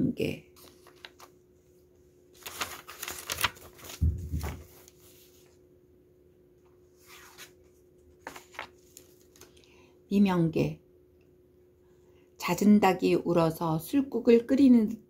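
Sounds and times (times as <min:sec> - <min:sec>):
paper cards rustling: 0:00.5 - 0:01.4, 0:02.3 - 0:05.6, 0:06.9 - 0:09.7
soft thump: 0:04.0 - 0:04.6.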